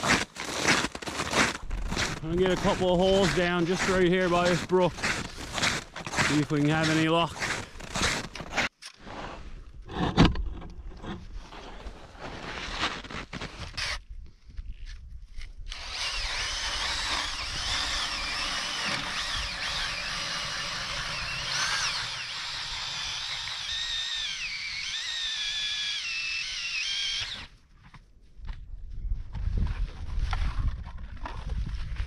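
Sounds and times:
power ice auger whining: 0:00.0 - 0:08.7, 0:12.3 - 0:14.0, 0:15.7 - 0:27.5.

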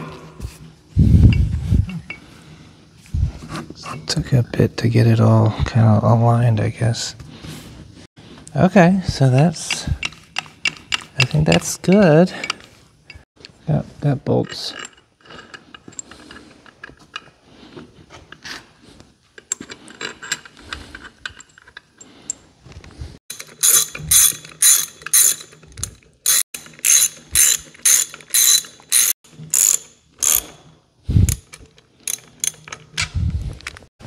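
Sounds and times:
ratchet wrench clicking: 0:23.3 - 0:30.5, 0:31.3 - 0:32.7.

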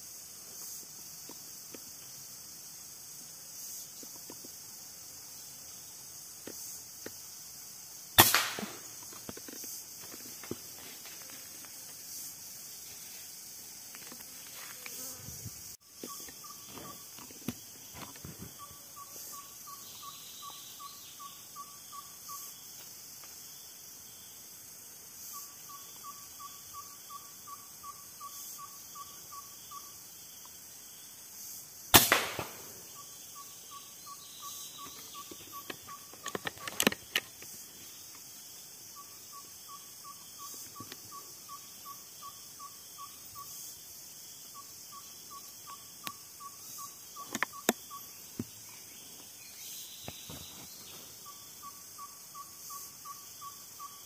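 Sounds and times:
air rifle shot: 0:08.2 - 0:08.9, 0:32.0 - 0:32.9.

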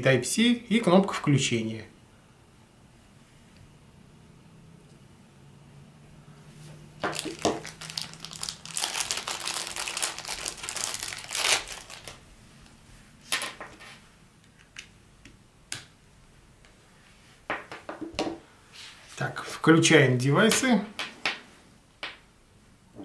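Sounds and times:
plastic packaging crinkling: 0:07.0 - 0:13.5.

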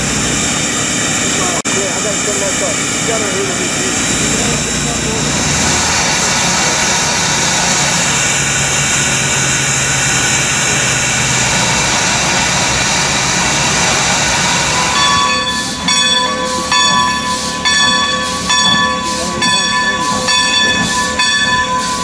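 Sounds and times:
steam hissing: 0:00.0 - 0:22.0
ringing tone: 0:14.8 - 0:22.0.

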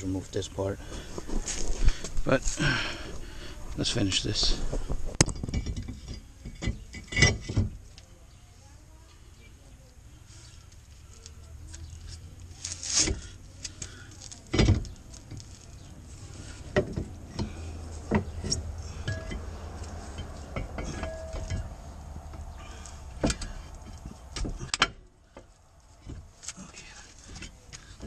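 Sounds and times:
metal clinks and knocks: 0:05.1 - 0:07.8, 0:16.6 - 0:26.4.

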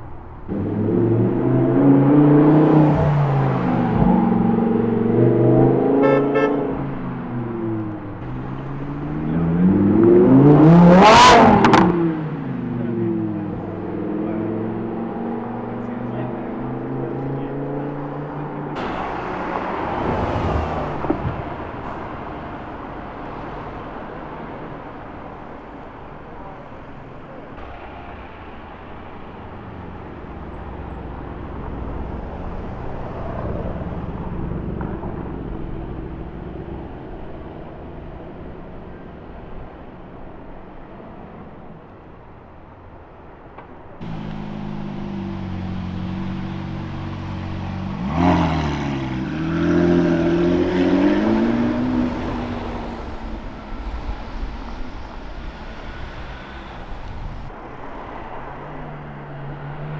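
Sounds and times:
car engine revving hard: 0:08.8 - 0:12.2, 0:44.0 - 0:53.0
car engine running unevenly: 0:44.0 - 0:48.0.

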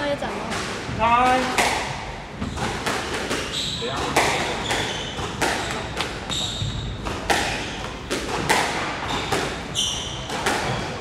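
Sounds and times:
squash ball smacks: 0:00.4 - 0:11.0
shoes squeaking on wooden floor: 0:03.4 - 0:08.1, 0:09.0 - 0:11.0.

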